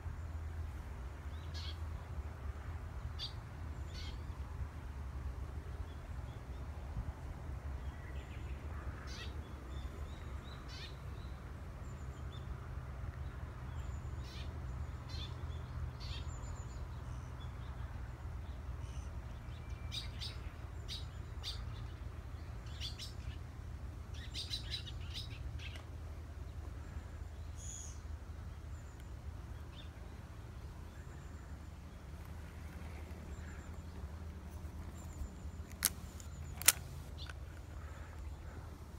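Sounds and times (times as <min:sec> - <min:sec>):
birds chirping: 0:26.6 - 0:38.9.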